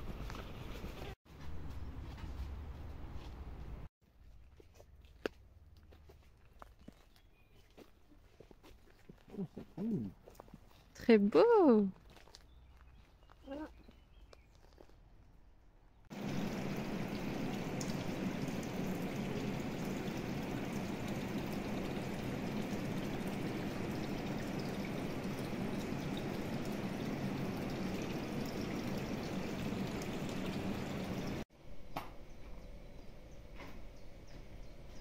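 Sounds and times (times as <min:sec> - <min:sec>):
running water rushing: 0:16.1 - 0:31.4.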